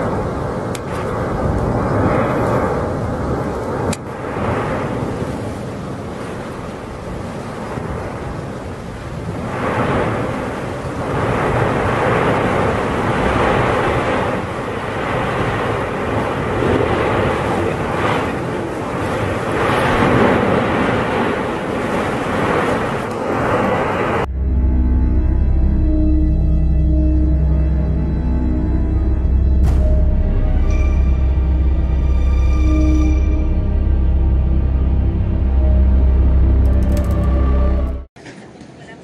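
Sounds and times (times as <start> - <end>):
lava flow rushing roar: 0.0 - 24.3.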